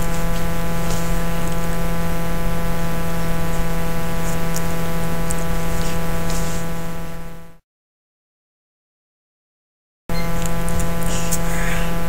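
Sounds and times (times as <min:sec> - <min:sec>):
electrical hum and buzz: 0:00.0 - 0:07.6, 0:10.1 - 0:12.0
static-like noise: 0:00.0 - 0:07.6, 0:10.1 - 0:12.0.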